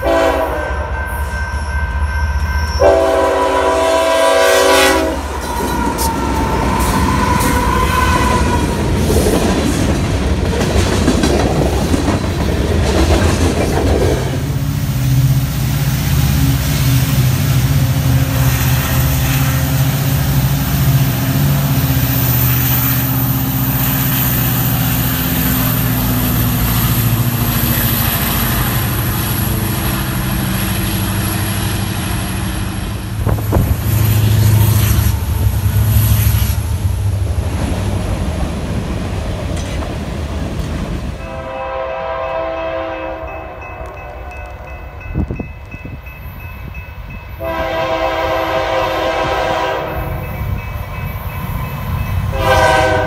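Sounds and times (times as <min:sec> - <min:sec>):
distant train air horn: 0:00.0 - 0:01.7, 0:02.6 - 0:06.2, 0:41.2 - 0:44.8, 0:47.4 - 0:50.3, 0:52.3 - 0:53.0
diesel locomotive engine rumble: 0:00.0 - 0:53.0
freight cars wheel and rail noise: 0:00.0 - 0:53.0.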